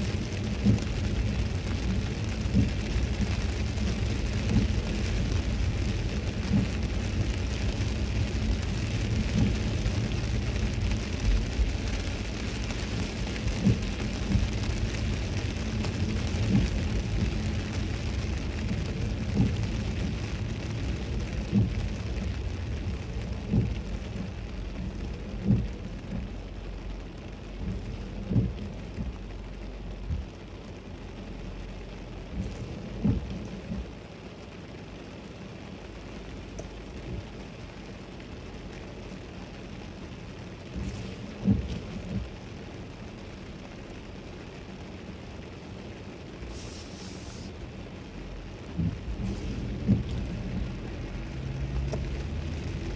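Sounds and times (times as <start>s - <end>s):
heavy rain on a car: 0.0s - 52.9s
tyres hissing on wet road: 0.0s - 52.9s
low thump: 48.8s - 50.7s.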